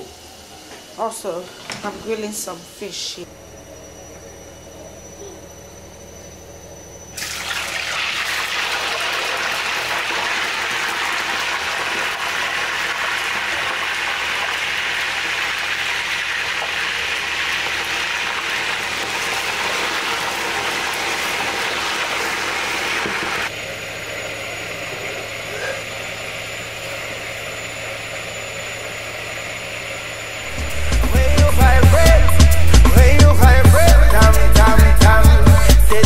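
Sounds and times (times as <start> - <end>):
hot oil sizzling: 7.2 - 23.5.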